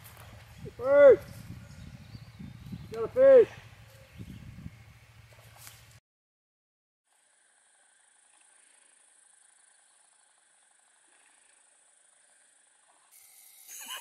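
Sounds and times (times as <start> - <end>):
insects droning: 7.1 - 14.0.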